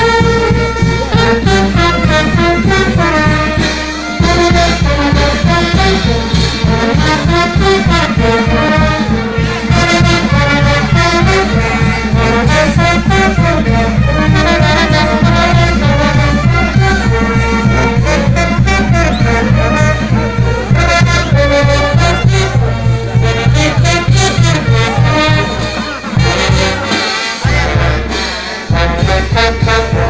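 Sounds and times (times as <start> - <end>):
brass band dance music: 0.0 - 30.0.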